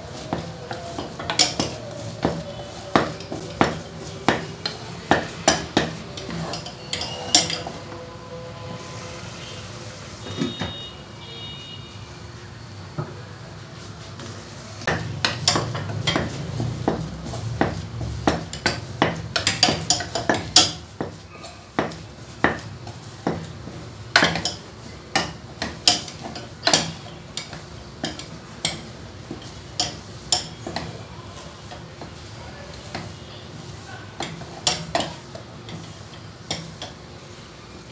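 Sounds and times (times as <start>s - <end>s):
spoon scraping and knocking pot: 0.0s - 7.9s, 14.8s - 33.2s, 33.8s - 37.0s.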